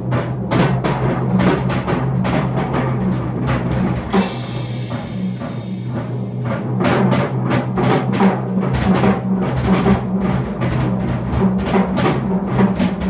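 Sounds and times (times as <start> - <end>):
double bass notes: 0.0 - 13.0
jazz drumming: 0.0 - 13.0
cymbal crash ringing: 4.2 - 6.6.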